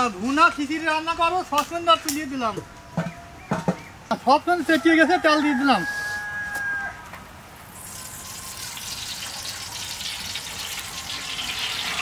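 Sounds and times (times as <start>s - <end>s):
oil pouring into a pot: 7.6s - 12.0s.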